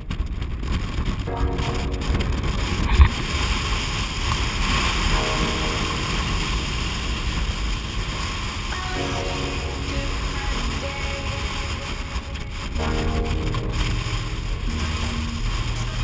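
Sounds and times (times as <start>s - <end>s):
wind buffeting microphone: 0.0s - 8.8s
water rushing: 1.3s - 16.0s.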